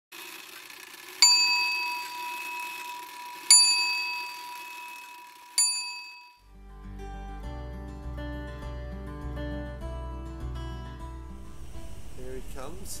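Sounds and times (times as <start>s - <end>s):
bell ringing: 1.2s - 6.4s.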